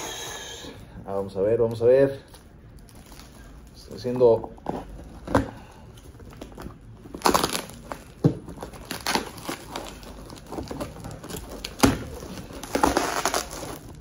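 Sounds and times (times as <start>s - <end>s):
bubble wrap crinkling: 1.6s - 14.0s
tape ripping: 6.2s - 14.0s.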